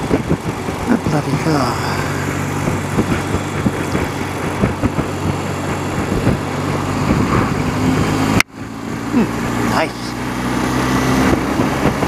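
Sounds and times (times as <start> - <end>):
motorcycle engine running: 0.0 - 12.0
road and wind noise: 0.0 - 12.0.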